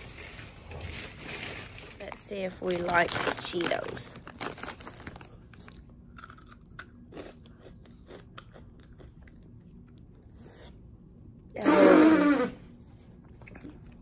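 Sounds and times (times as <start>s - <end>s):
crunching and chewing snacks: 0.8s - 10.8s.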